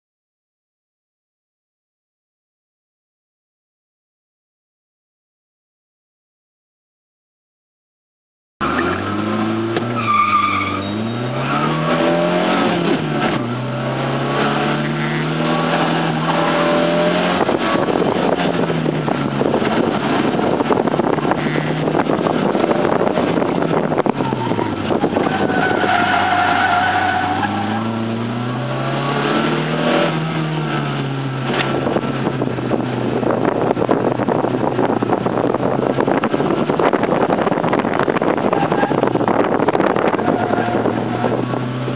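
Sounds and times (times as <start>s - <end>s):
car engine revving: 8.6s - 41.9s
tires squealing: 8.6s - 41.9s.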